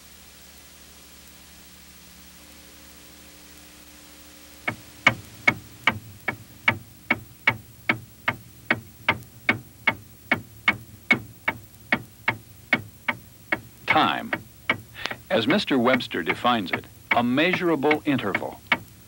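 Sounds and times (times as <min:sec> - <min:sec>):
faint tape hiss: 0:00.0 - 0:19.0
clock ticking: 0:04.6 - 0:19.0.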